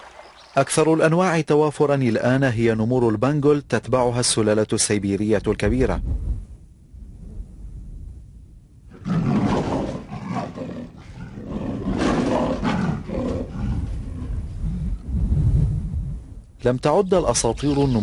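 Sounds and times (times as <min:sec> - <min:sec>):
tiger roaring and snarling: 0:08.9 - 0:15.0.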